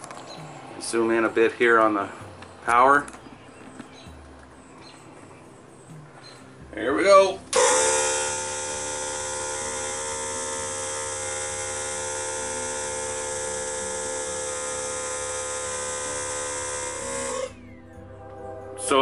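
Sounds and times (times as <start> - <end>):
air compressor humming: 7.4 - 17.8.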